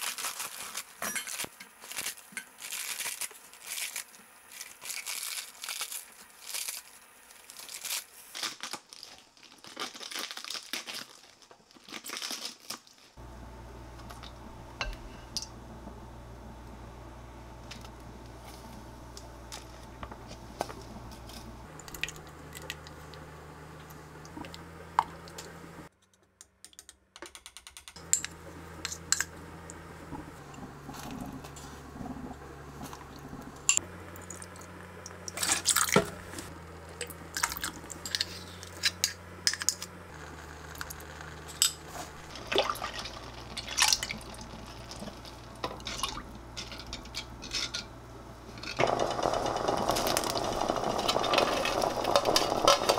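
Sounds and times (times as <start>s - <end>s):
steady low hum: 13.2s - 25.9s, 28.0s - 52.9s
liquid pouring and dripping into pot: 42.3s - 46.4s.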